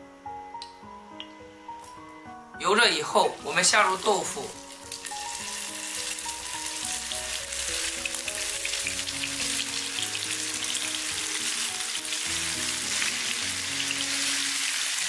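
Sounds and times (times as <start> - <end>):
background music: 0.0 - 15.0
tofu sizzling in hot oil: 3.2 - 15.0.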